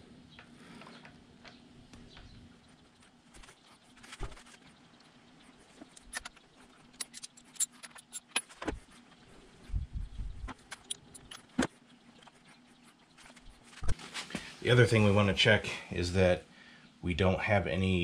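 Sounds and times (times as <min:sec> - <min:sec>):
small metallic clicks and clinks: 0:06.9 - 0:08.6, 0:10.7 - 0:11.5.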